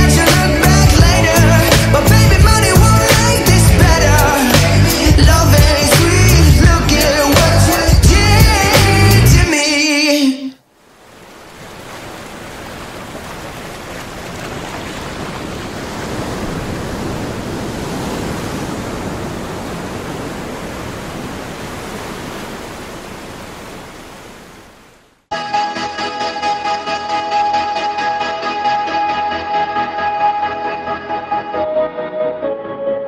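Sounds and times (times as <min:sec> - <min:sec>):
music: 0:00.0 - 0:10.6, 0:25.3 - 0:33.0.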